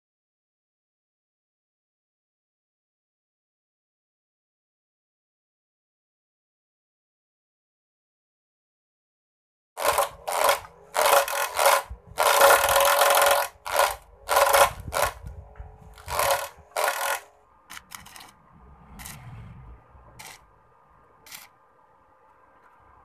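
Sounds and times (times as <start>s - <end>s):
electric motor whining: 9.8s - 18.4s.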